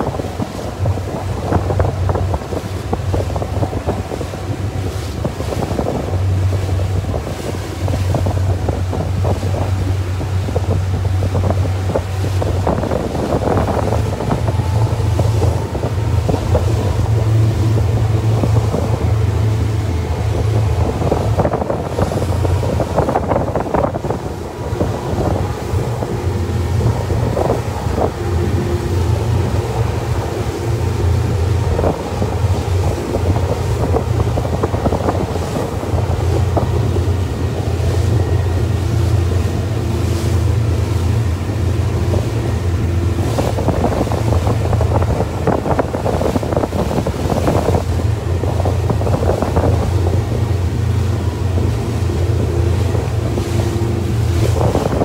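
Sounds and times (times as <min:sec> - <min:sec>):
boat engine humming: 0:00.0 - 0:55.0
water rushing past hull: 0:00.0 - 0:55.0
wind buffeting microphone: 0:00.0 - 0:55.0.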